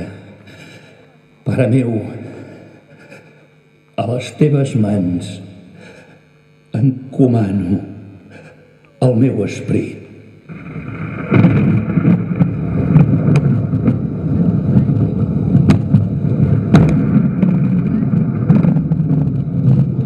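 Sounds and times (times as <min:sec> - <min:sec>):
sharp thunder cracks: 0:10.5 - 0:20.0
thunder rumble: 0:10.5 - 0:20.0.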